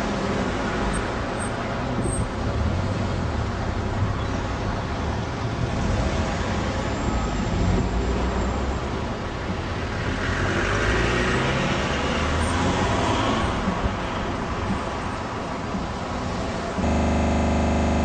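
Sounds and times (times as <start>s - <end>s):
electric tram rumble and hum: 13.4s - 18.0s.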